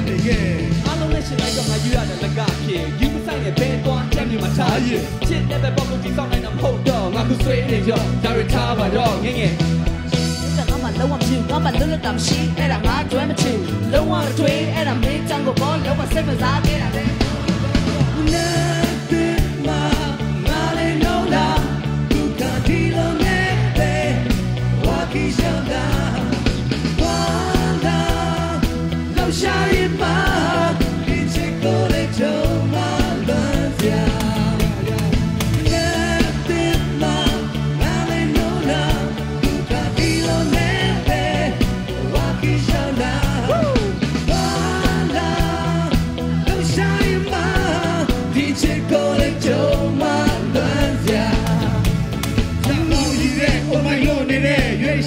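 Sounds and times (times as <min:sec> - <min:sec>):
drums: 0:00.0 - 0:55.0
electric guitar: 0:00.0 - 0:55.0
person singing into a microphone: 0:18.2 - 0:55.0.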